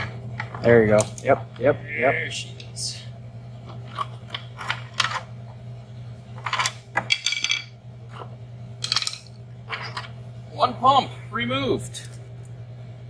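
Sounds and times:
steady low hum: 0.0 - 13.0
metal clinks and knocks: 6.4 - 10.2.

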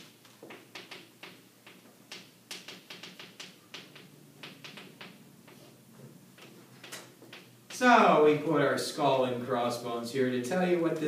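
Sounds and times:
chalk tapping on chalkboard: 0.0 - 5.8.

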